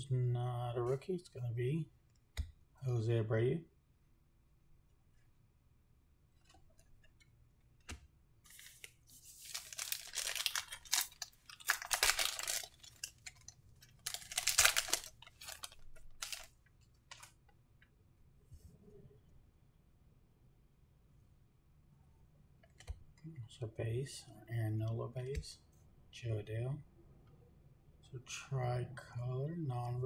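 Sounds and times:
cards rustling in hands: 6.4 - 17.4
card pack wrapper tearing and crinkling: 8.5 - 16.5.

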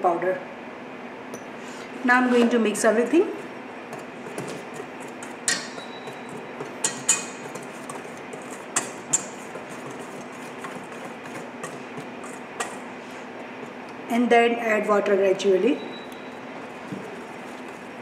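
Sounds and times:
whisk stirring flour in a bowl: 3.0 - 13.9, 16.4 - 18.0
whisk clinking on metal bowl: 3.9 - 12.9.

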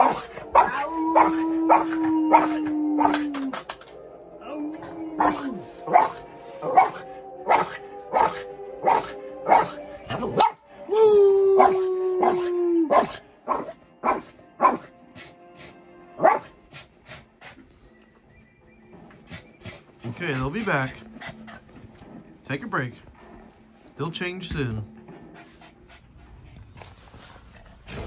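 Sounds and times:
dog barking: 0.0 - 3.2, 5.2 - 10.6, 11.6 - 14.9, 16.2 - 16.6
dog howling: 0.0 - 13.7
music playing: 0.0 - 28.0.

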